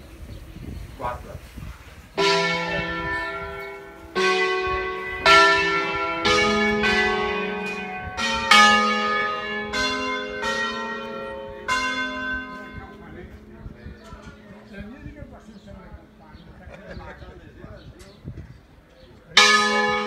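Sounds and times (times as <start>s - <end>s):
church bells ringing: 2.2s - 16.5s, 19.4s - 20.0s.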